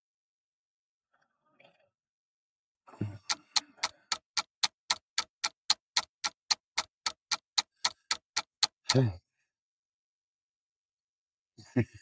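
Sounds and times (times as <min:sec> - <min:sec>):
rapid even ticking: 0:03.2 - 0:09.0.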